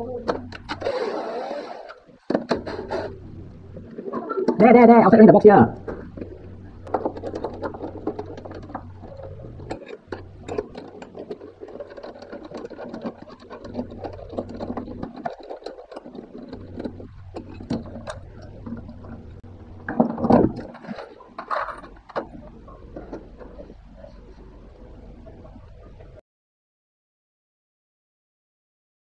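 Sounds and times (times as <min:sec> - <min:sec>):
low steady hum: 0:00.0 - 0:26.2
parts clattering: 0:00.0 - 0:26.2
screwdriver and parts rattling: 0:05.8 - 0:25.8.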